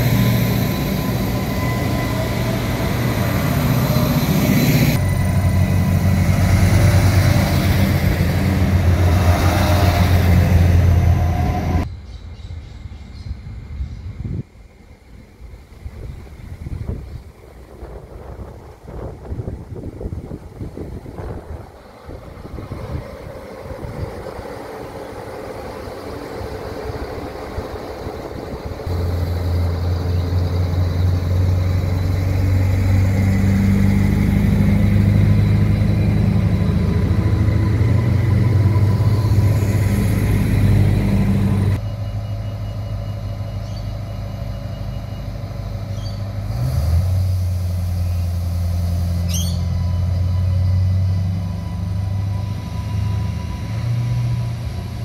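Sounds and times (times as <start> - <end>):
railcar engine humming: 0.0 - 55.0
brief high squeal: 49.0 - 53.8.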